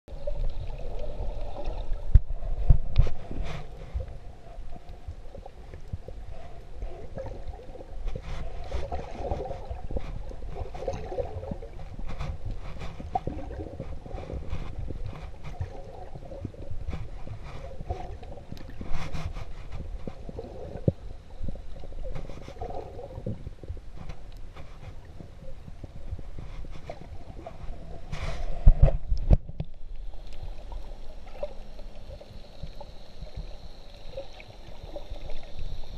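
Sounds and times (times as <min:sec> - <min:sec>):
underwater rumble and gurgling: 0:00.1 - 0:35.9.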